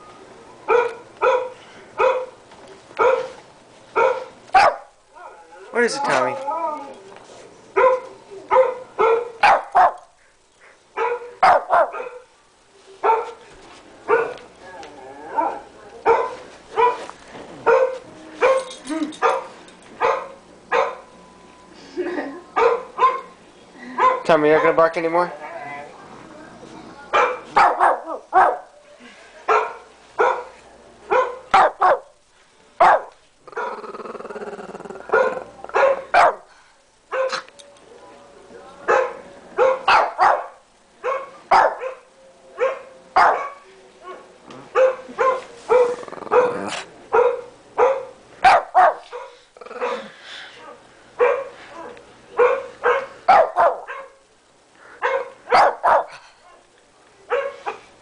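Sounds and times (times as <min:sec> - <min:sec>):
dog barking: 0:00.7 - 0:02.4, 0:03.0 - 0:03.4, 0:04.0 - 0:04.9, 0:07.8 - 0:10.0, 0:11.0 - 0:12.3, 0:13.0 - 0:13.4, 0:14.1 - 0:14.4, 0:15.5 - 0:21.1, 0:22.6 - 0:23.3, 0:24.0 - 0:24.8, 0:27.1 - 0:28.7, 0:29.5 - 0:32.1, 0:32.8 - 0:33.7, 0:35.1 - 0:36.5, 0:37.1 - 0:37.5, 0:38.9 - 0:50.1, 0:51.2 - 0:54.2, 0:55.0 - 0:56.2, 0:57.3 - 0:57.9
dog growling: 0:33.4 - 0:35.8, 0:45.8 - 0:47.0, 0:49.3 - 0:50.4.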